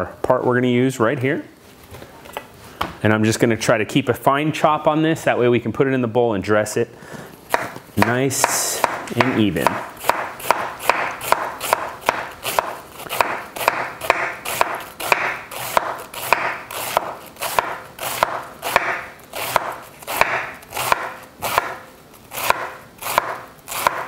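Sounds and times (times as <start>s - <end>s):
knife chopping cabbage on board: 7.5s - 24.0s.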